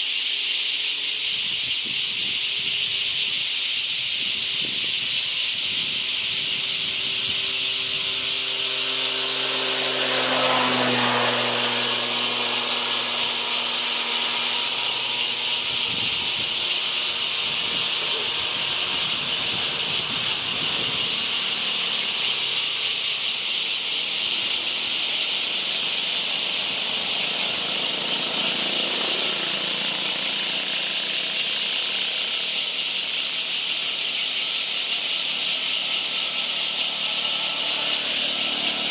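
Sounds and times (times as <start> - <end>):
cicadas buzzing chorus: 0.0 - 38.9.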